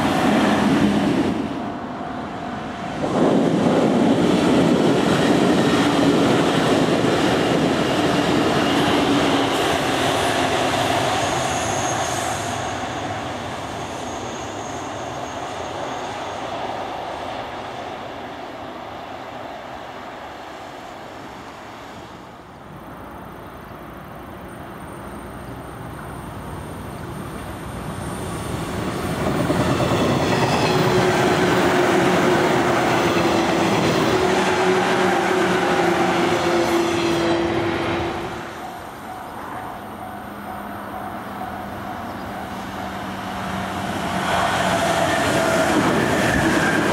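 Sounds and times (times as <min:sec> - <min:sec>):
electric train running: 0:23.6 - 0:46.9
train wheel clatter on rails: 0:27.0 - 0:39.7, 0:42.0 - 0:46.9.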